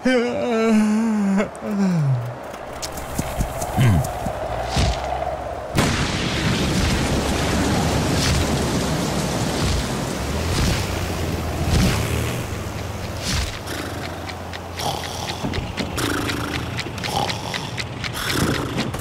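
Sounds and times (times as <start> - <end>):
thunder crack: 5.7 - 11.0
heavy rain hissing: 5.8 - 18.7.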